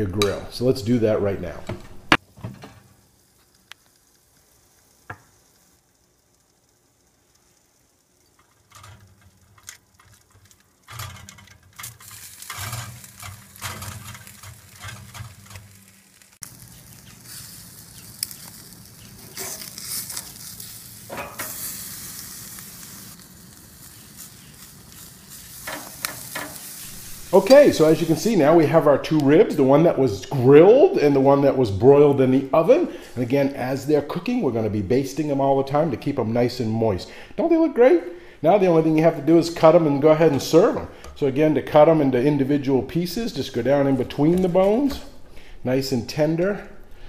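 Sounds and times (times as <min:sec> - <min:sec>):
ribs sizzling: 0:00.0 - 0:47.0
brush basting ribs: 0:03.3 - 0:30.3.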